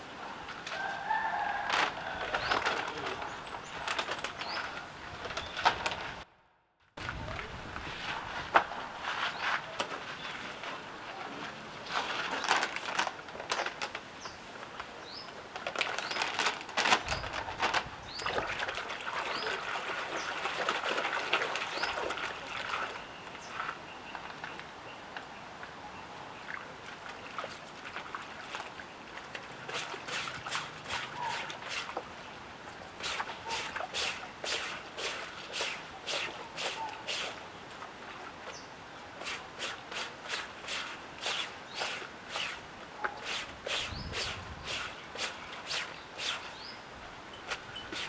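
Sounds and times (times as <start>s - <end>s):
water sloshing in a tub: 16.4s - 24.5s, 26.4s - 46.6s.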